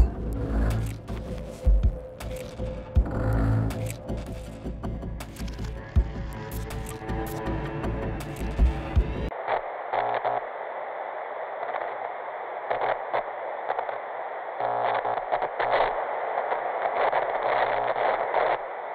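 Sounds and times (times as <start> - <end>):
glitch crackles: 0.0 - 7.4, 9.3 - 18.9
tv static hiss: 9.3 - 18.9.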